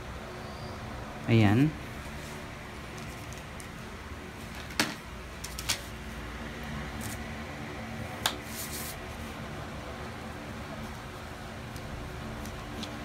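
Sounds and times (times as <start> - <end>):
steady background hum: 0.0 - 13.0
paper scrape: 8.4 - 9.3.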